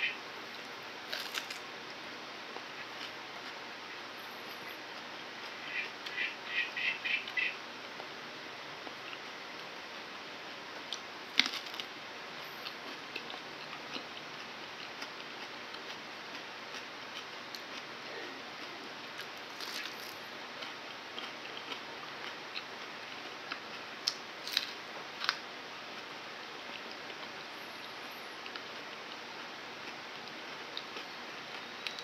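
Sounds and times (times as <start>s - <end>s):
faint steady hiss: 0.0s - 32.0s
chewing crunchy banana: 0.5s - 3.9s, 10.8s - 32.0s.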